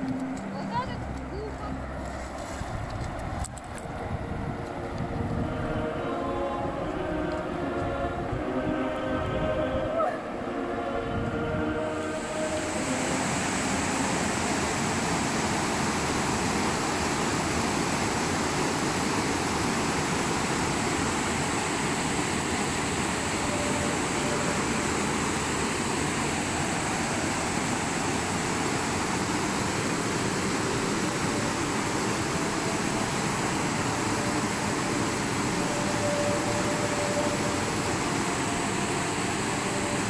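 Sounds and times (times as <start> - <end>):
waterfall rushing over rocks: 11.6 - 40.0.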